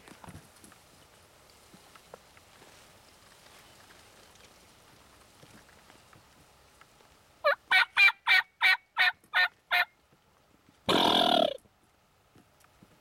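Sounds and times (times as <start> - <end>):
turkey gobble: 7.4 - 9.9, 10.9 - 11.6
turkey hen yelps: 7.4 - 9.9, 10.9 - 11.6.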